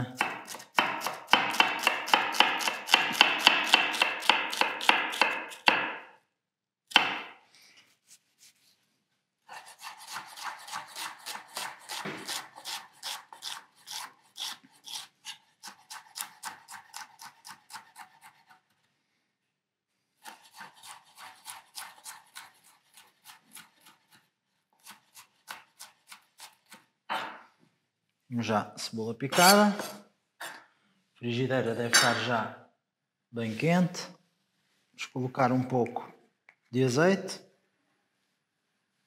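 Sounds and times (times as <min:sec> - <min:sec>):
knife chopping on wooden board: 0:00.1 - 0:06.1, 0:06.9 - 0:07.4, 0:09.8 - 0:13.6.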